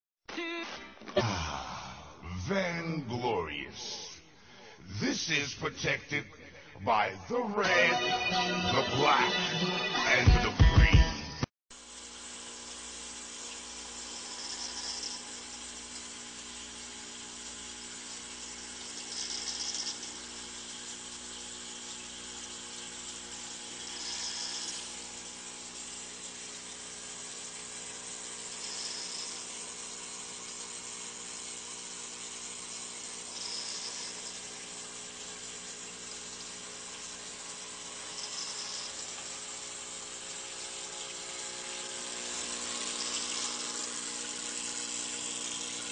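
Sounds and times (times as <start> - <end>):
water pump humming: 11.7 - 45.9
water hiss surging: 11.8 - 45.9.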